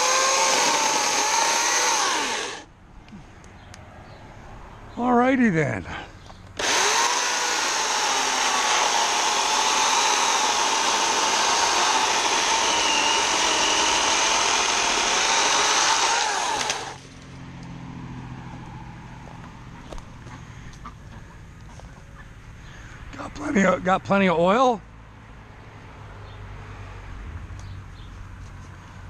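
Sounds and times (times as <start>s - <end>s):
electric chainsaw cutting wood: 0.0s - 2.7s, 6.6s - 17.0s.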